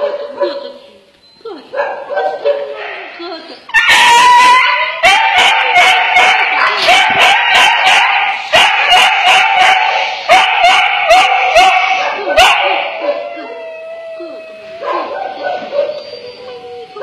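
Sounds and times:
dog yelping and screaming: 3.7 - 17.0.

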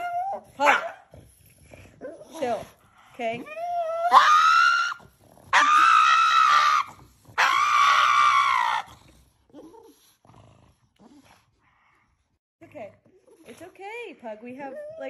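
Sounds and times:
dog screaming: 3.8 - 8.9.

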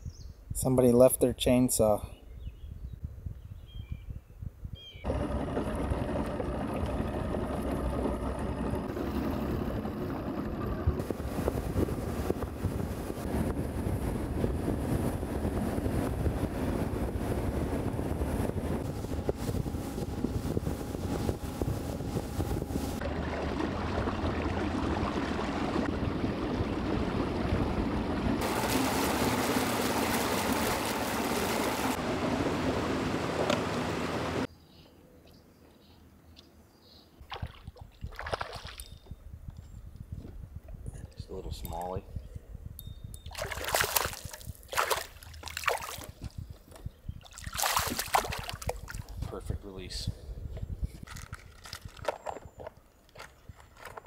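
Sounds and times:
outboard motor running: 5.0 - 34.5
water rushing past hull: 5.1 - 34.5, 43.3 - 46.2, 47.2 - 49.2
wind rushing: 8.6 - 34.4.

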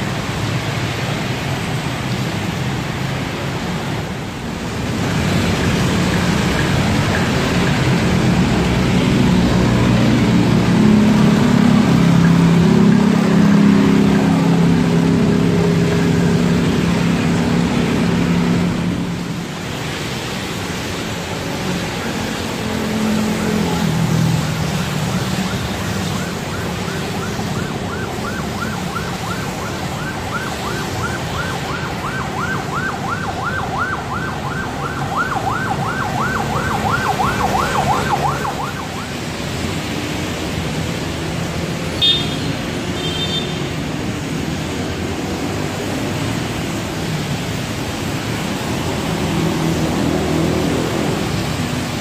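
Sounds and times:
traffic on a wet road: 0.0 - 52.0
siren yelping: 25.1 - 39.4.

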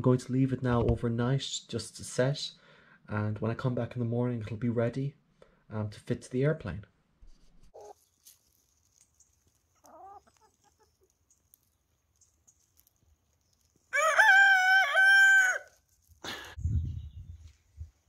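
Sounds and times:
faint chicken clucks: 7.7 - 12.8
rustle: 7.8 - 14.3, 15.3 - 16.6
rooster crowing: 13.9 - 15.7.

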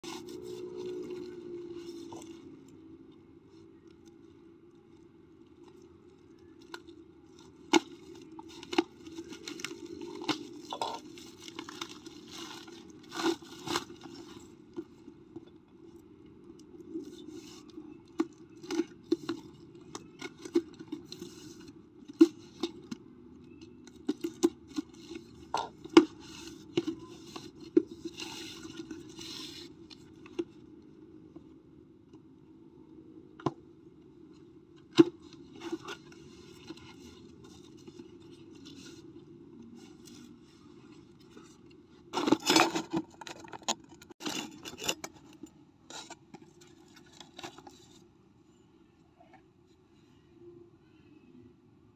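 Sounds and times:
packaging tearing and rustling: 7.6 - 14.5.

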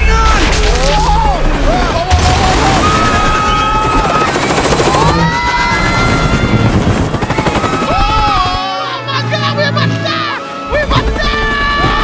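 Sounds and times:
helicopter rotor chopping: 0.8 - 8.8, 10.7 - 12.0.

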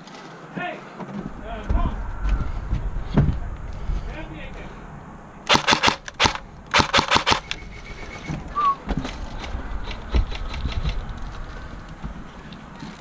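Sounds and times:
dull low thumps: 1.2 - 5.5, 7.7 - 12.4
airsoft rifle burst: 5.5 - 7.6.

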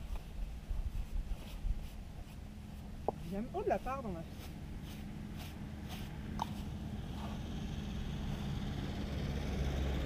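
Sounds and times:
wind rumbling on microphone: 0.0 - 4.4
brush strokes on horse coat: 0.0 - 7.6.

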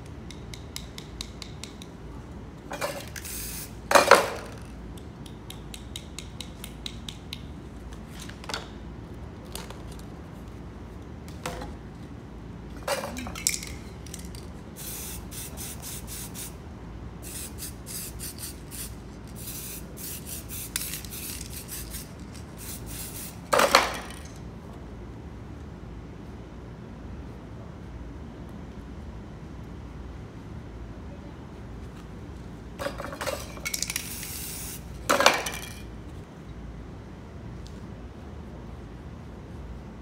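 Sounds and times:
spray paint can hissing: 2.8 - 4.8, 13.3 - 16.6, 17.2 - 24.4, 32.8 - 35.7.

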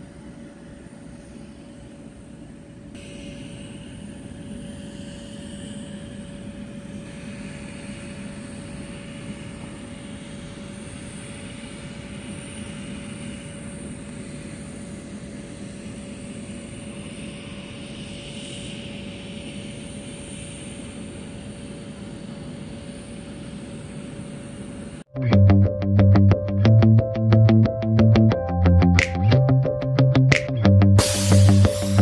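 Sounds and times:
aircraft engine drone: 0.0 - 32.0.

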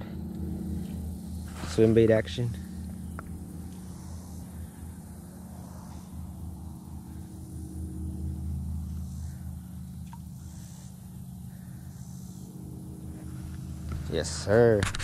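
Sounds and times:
distant engine hum: 0.0 - 15.0
faint ticks: 10.0 - 10.3.

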